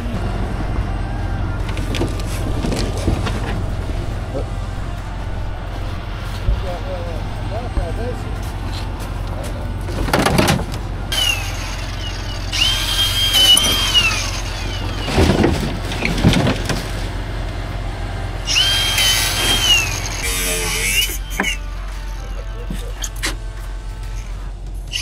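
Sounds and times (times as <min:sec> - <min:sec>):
low engine hum: 0:00.0 - 0:25.0
power tool whine: 0:11.1 - 0:16.4, 0:18.1 - 0:25.0.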